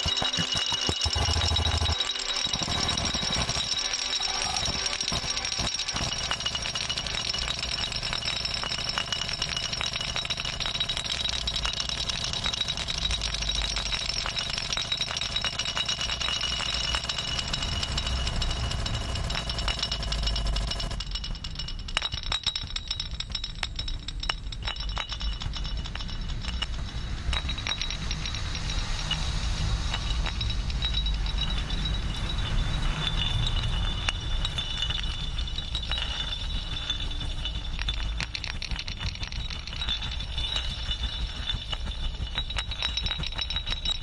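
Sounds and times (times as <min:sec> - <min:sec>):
granular electronic sound: 0:00.0 - 0:15.4
high tones and drone: 0:00.0 - 0:21.0, 0:26.2 - 0:44.0
hand percussion rattling: 0:00.0 - 0:44.0
low rumble: 0:26.1 - 0:44.0.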